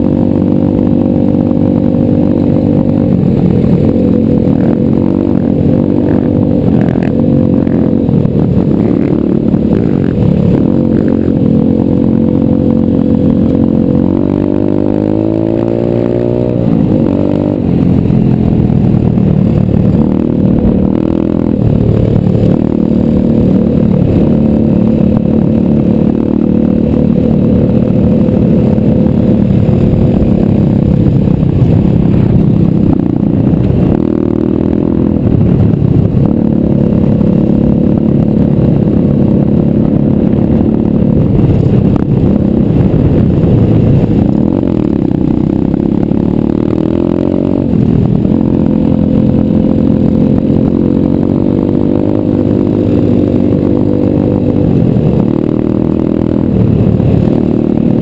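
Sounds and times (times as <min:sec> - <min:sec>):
motorbike engine revving: 0:00.0 - 0:58.0.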